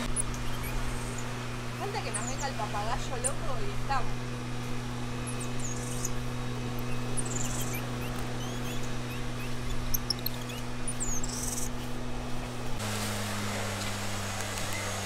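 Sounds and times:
steady low hum: 0:00.0 - 0:15.0
high-pitched animal chirps: 0:00.1 - 0:01.2, 0:06.8 - 0:11.9.

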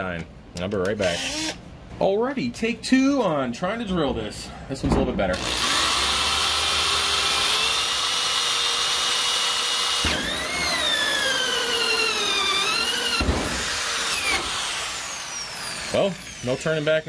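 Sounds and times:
electric drill with hole saw: 0:01.1 - 0:01.6, 0:05.4 - 0:17.0.

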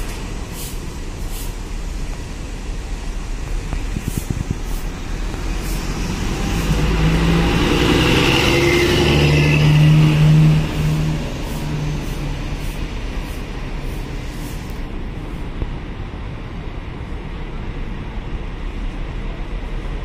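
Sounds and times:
coach diesel engine passing: 0:03.5 - 0:15.3.

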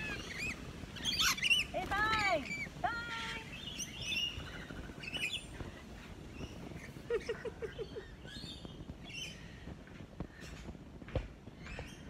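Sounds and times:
parrots screeching and chirping: 0:00.0 - 0:07.1.

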